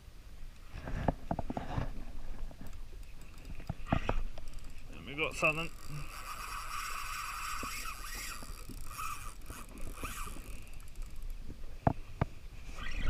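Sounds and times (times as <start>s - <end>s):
fishing reel whirring: 3.0s - 11.5s.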